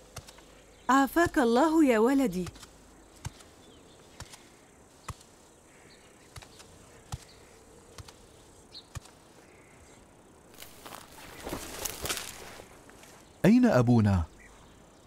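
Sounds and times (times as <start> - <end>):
insects buzzing and chirping: 0.0 - 15.0
soft footsteps: 10.5 - 13.4.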